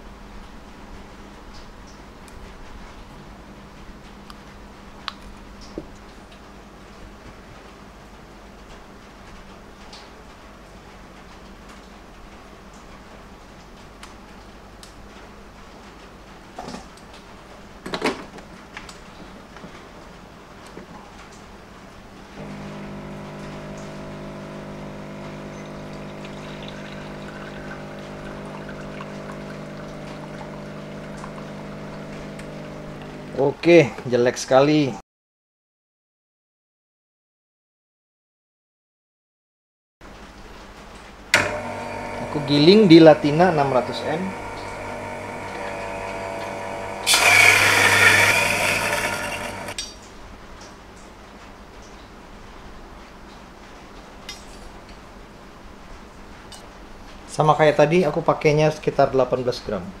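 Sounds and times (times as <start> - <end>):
espresso trickling into glass: 22.4 - 33.3, 41.4 - 49.8
coffee beans grinding loudly: 22.4 - 33.4, 41.4 - 49.8
espresso machine pump humming: 22.4 - 33.4, 41.4 - 49.8.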